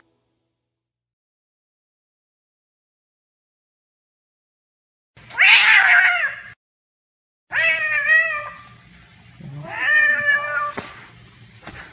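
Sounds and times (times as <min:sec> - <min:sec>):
cat meowing: 0:05.3 - 0:06.6, 0:07.5 - 0:08.7, 0:09.5 - 0:11.0.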